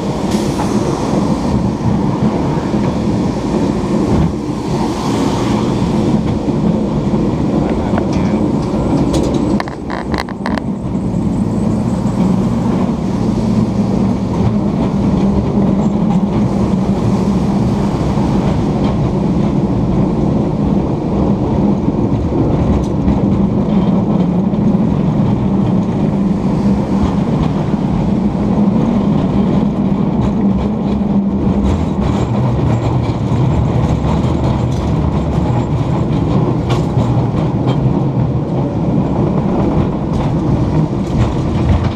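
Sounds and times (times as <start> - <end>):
cable car rumbling on rails: 0.0 - 41.9.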